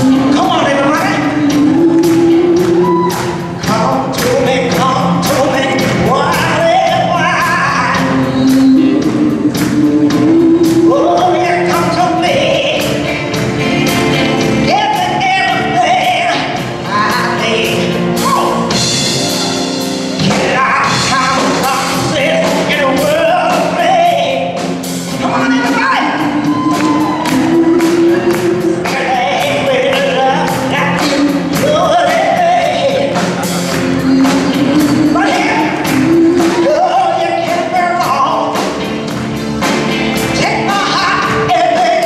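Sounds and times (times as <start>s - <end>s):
backing vocals: 0.0s - 13.7s, 20.2s - 39.2s
woman singing lead: 0.0s - 19.5s, 20.2s - 39.2s, 40.3s - 42.0s
drum kit steady beat: 0.0s - 42.0s
electric guitar: 0.0s - 42.0s
keyboard: 0.0s - 42.0s.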